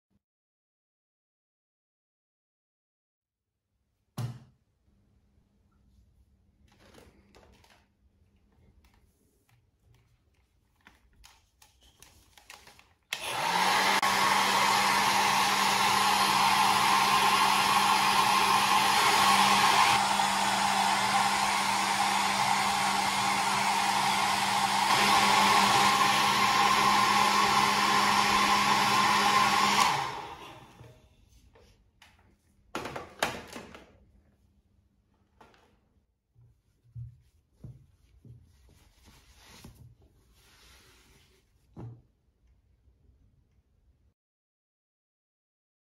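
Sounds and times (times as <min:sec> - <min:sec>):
hair dryer blowing: 0:13.1 - 0:31.0.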